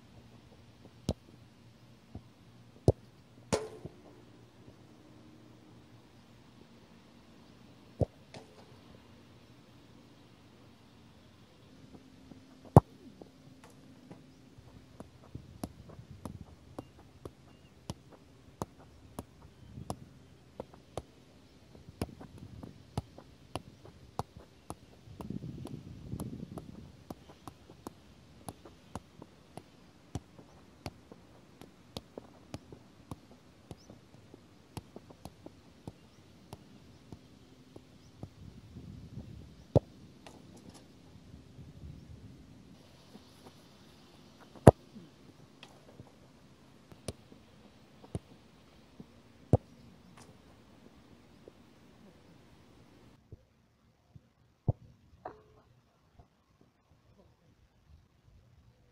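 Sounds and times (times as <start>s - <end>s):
light knocks of football juggling: 0.5s - 1.4s, 2.1s - 4.8s, 8.0s - 8.8s, 11.9s - 38.6s, 39.6s - 40.9s, 43.1s - 46.2s, 46.8s - 52.2s.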